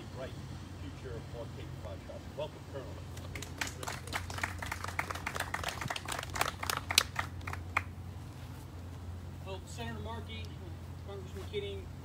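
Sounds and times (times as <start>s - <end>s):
people applauding: 3.2s - 7.9s.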